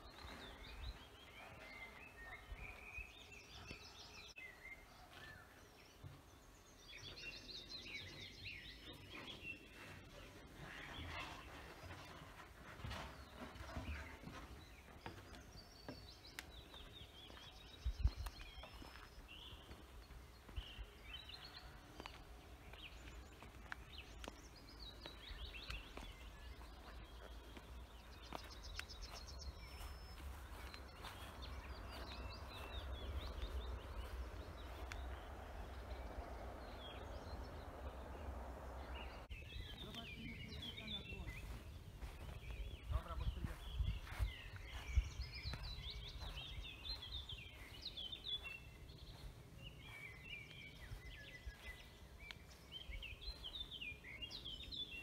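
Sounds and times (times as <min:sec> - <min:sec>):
small birds chirping: 0:00.0 - 0:55.0
wind rumble on microphone: 0:17.7 - 0:18.6, 0:29.3 - 0:40.5, 0:41.1 - 0:53.7.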